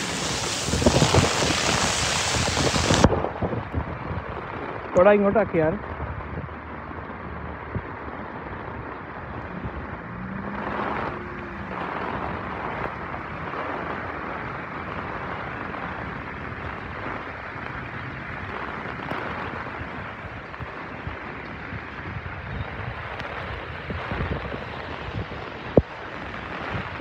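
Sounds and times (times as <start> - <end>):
tyres swishing through water: 0.0 - 3.2
steady rain: 0.0 - 27.0.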